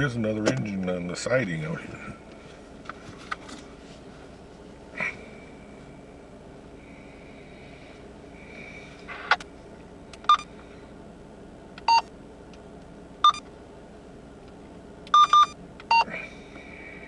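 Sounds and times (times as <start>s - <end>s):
low hum inside car: 0.0s - 17.0s
short electronic key beeps: 10.2s - 10.5s, 13.2s - 13.4s, 15.1s - 16.1s.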